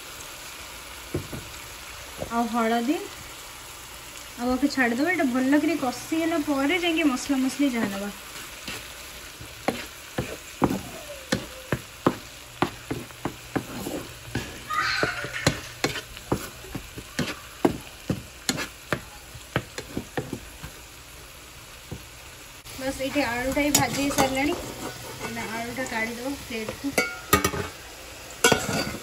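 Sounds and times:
masala sizzling in oil: 0.0 - 29.0
spatula scraping a pan: 6.7 - 20.9, 23.0 - 27.8, 28.4 - 29.0.

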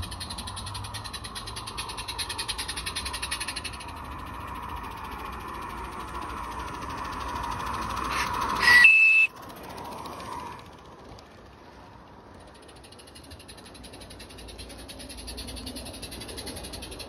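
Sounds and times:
steam locomotive running past: 0.0 - 17.0
steam whistle blast: 8.1 - 9.3.

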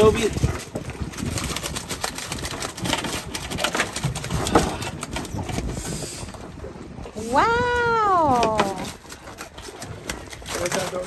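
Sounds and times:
lobsters scrabbling in mesh bag: 0.5 - 5.4.

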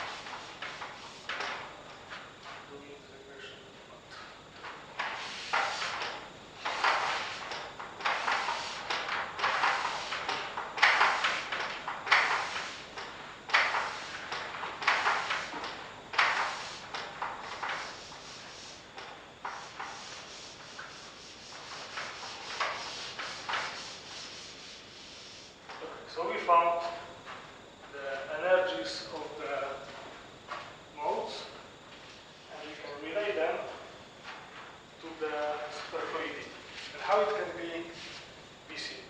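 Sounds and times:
eraser rubbing on chalkboard: 5.1 - 6.0, 16.3 - 16.9, 17.6 - 18.8, 19.4 - 25.6.

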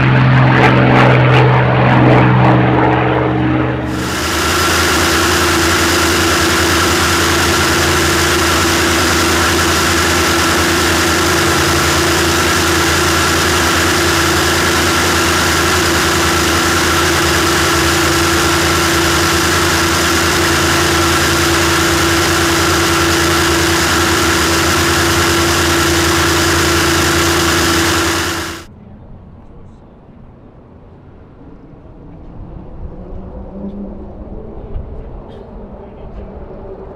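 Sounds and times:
aircraft engine drone: 0.0 - 28.7.

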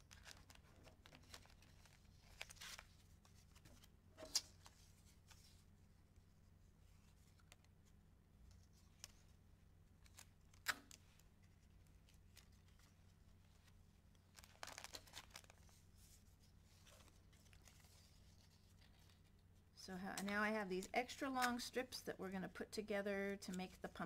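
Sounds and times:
paper rustling: 0.0 - 5.6, 10.0 - 19.4.

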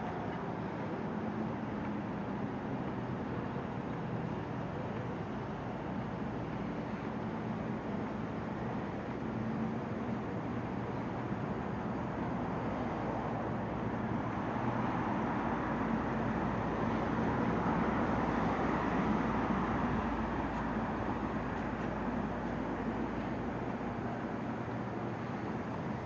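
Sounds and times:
road traffic passing: 12.0 - 26.0.

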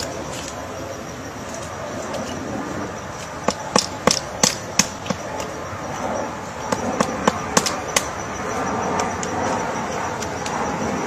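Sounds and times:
woodpecker pecking wood: 3.2 - 5.6, 6.7 - 8.2.

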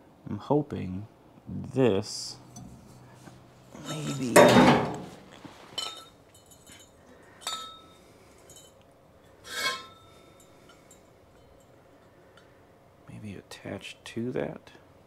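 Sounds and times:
metal tubing clinking: 3.7 - 8.8, 9.4 - 12.5.

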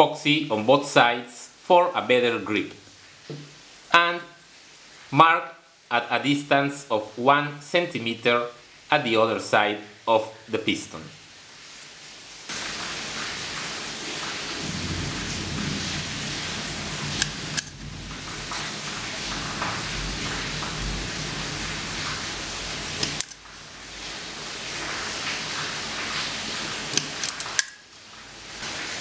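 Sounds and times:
scissors cutting aluminium can: 23.0 - 23.4.

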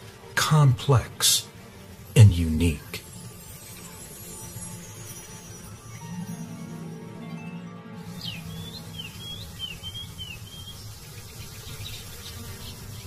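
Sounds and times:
bird whistling song: 8.1 - 13.0
faint bird chirps: 8.1 - 13.0.

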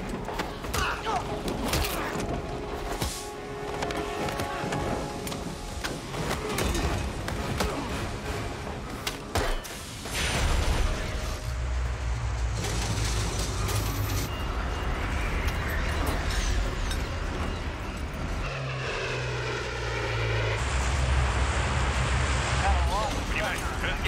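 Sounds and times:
propeller plane engine drone: 11.6 - 24.0
plane passing whoosh: 18.3 - 23.0.

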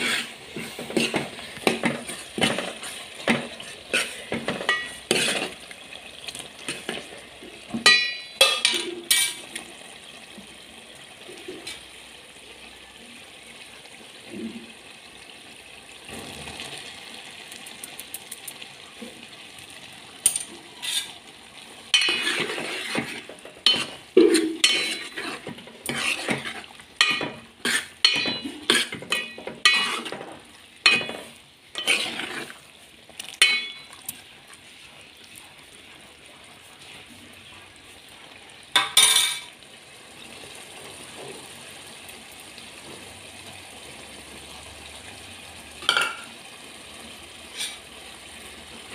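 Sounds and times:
spoon scraping metal pan: 0.0 - 5.6, 7.8 - 9.5, 20.3 - 21.2, 21.9 - 32.6, 33.4 - 33.9, 47.5 - 47.8
curry sizzling: 0.0 - 48.9.

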